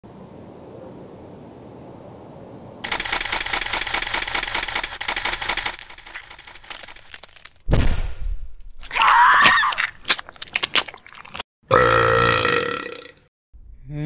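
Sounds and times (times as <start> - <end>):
camera shutters clicking rapidly: 2.8 - 7.6.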